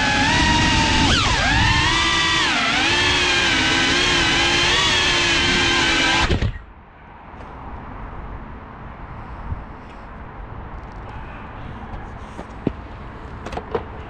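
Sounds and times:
quadcopter motors whining: 0.0s - 6.6s.

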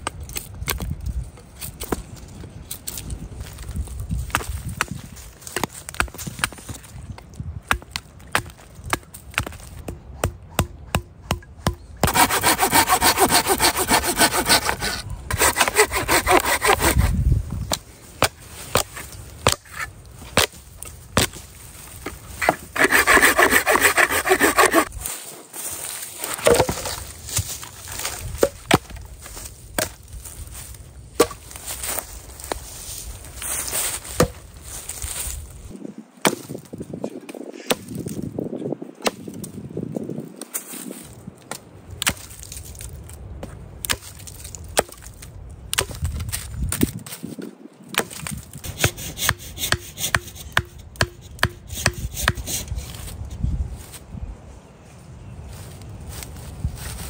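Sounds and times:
axe chopping log: 7.6s - 20.6s, 26.3s - 27.5s, 36.2s - 36.7s, 37.7s - 38.0s, 39.0s - 39.4s, 47.9s - 52.6s
hand saw rasping through log: 12.0s - 17.2s, 22.4s - 25.0s, 48.6s - 53.0s.

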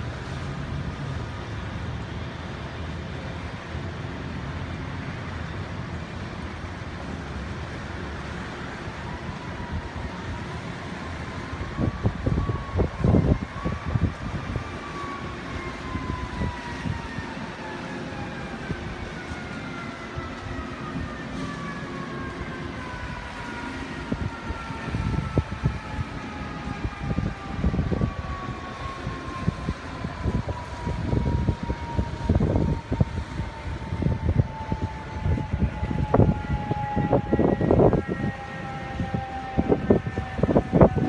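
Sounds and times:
siren winding down: 8.3s - 41.0s
gusty rumbling: 9.1s - 41.0s.

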